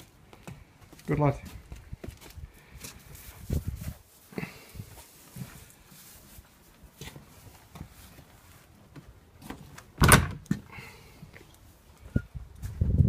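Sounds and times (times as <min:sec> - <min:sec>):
door banging shut: 0:10.0 - 0:10.5.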